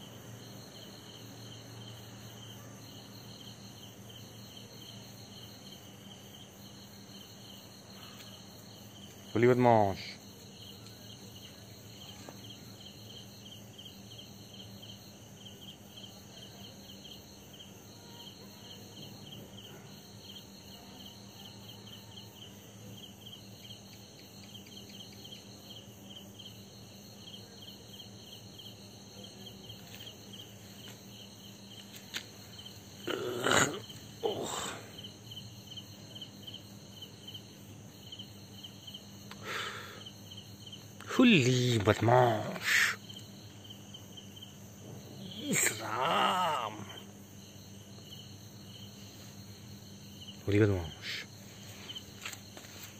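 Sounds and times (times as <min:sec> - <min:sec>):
crickets chirping: 0:00.0 - 0:52.9.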